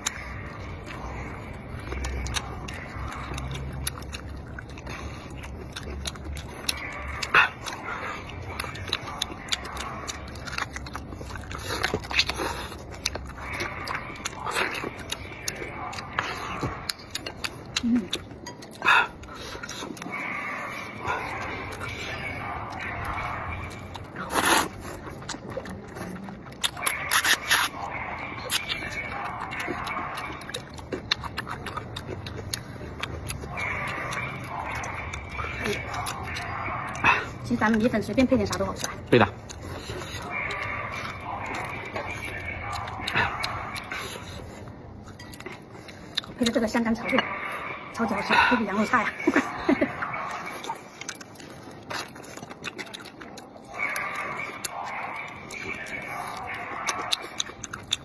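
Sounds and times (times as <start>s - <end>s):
man chewing meat: 0.0s - 58.0s
noodle slurping: 26.7s - 37.5s.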